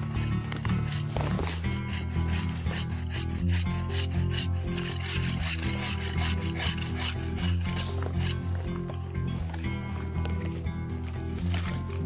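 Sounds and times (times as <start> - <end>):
bow saw cutting wood: 0.0 - 8.9
low background music: 0.0 - 12.0.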